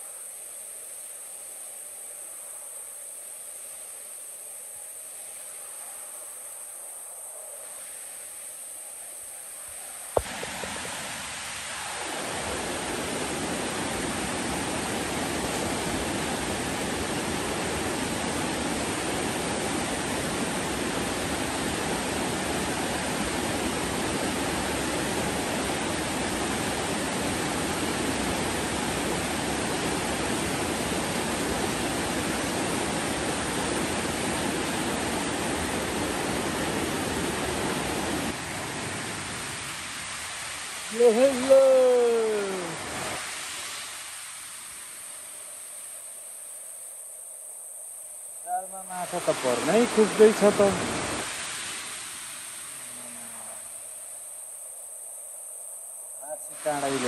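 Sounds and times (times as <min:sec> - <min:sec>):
fast river water rushing: 0:01.8 - 0:46.5, 0:48.4 - 0:54.0, 0:56.2 - 0:57.0.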